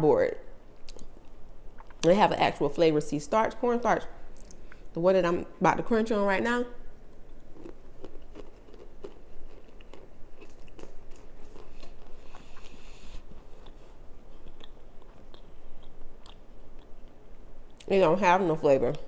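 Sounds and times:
person chewing crunchy starch: 7.3 - 17.8.

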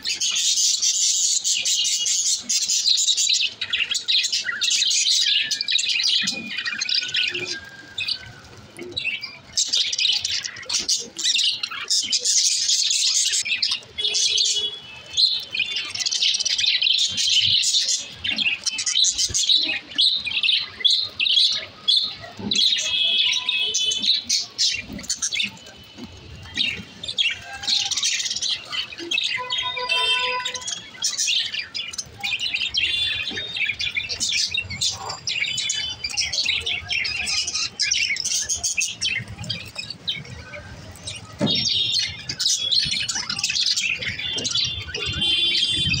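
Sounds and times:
budgerigars chattering: 32.1 - 39.8.

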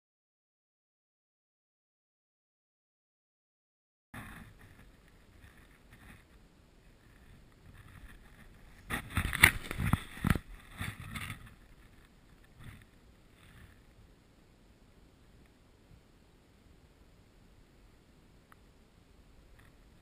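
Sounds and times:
faint outdoor background: 4.2 - 20.0.

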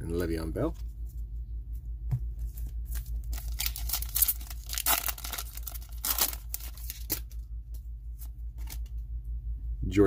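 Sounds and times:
plastic wrapper tearing and crinkling: 2.9 - 7.4.

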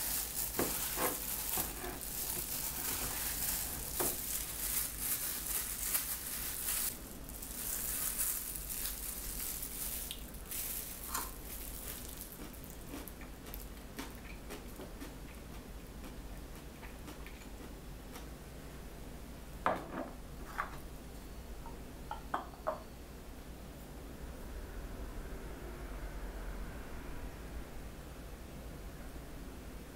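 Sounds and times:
plastic glove crinkling: 0.0 - 13.2
gloved hand squishing food: 0.0 - 15.4.

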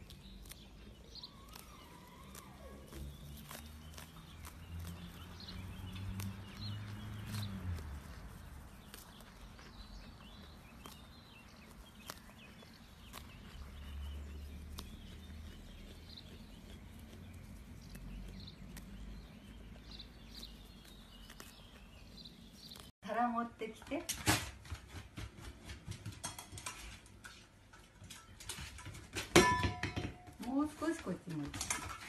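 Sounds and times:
small birds chirping: 0.0 - 24.1.

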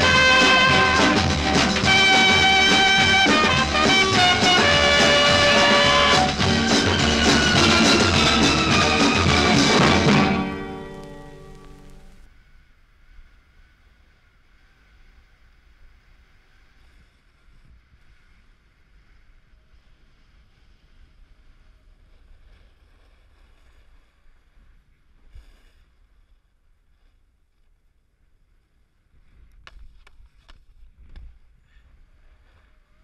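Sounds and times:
snowboard sliding on snow: 0.0 - 25.9.

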